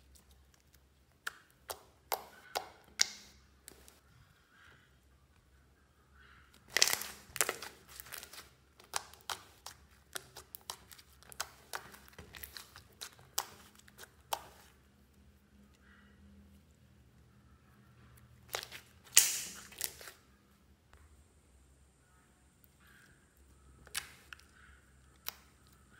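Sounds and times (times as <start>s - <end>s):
slime popping and crackling: 0.0s - 4.0s, 6.6s - 14.7s, 18.5s - 20.2s.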